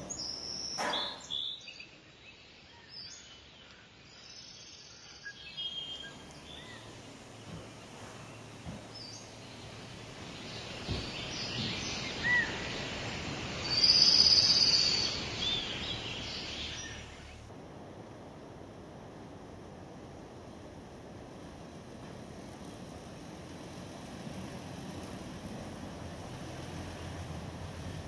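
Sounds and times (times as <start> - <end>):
steady background hiss: 0.0 - 28.0
high bird trill: 10.4 - 17.4
bird chirps and whistles: 13.7 - 15.7.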